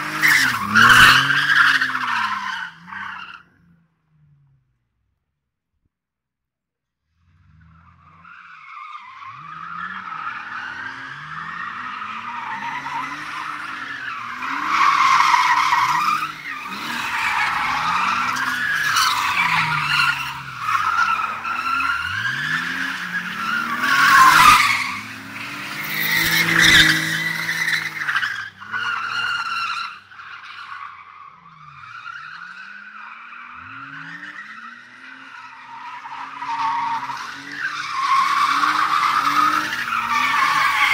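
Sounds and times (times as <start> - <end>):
car engine revving: 9.2 - 29.4.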